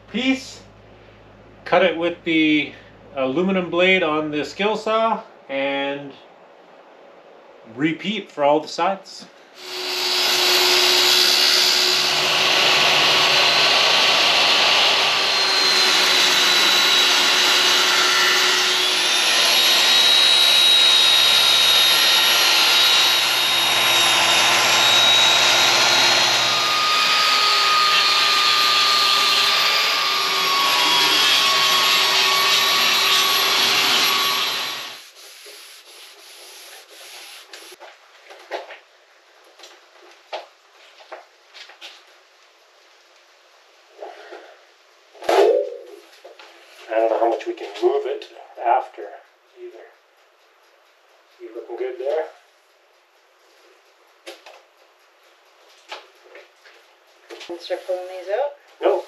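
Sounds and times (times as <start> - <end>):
circular saw cutting aluminum: 9.6 - 35.2.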